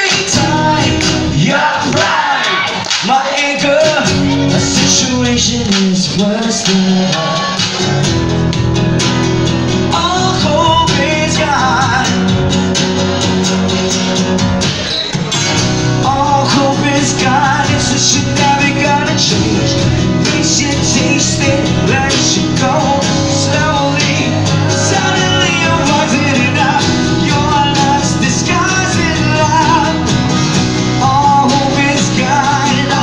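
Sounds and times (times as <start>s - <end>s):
man singing: 0.0s - 8.0s, 9.8s - 12.7s, 15.8s - 33.0s
acoustic guitars playing: 0.0s - 33.0s.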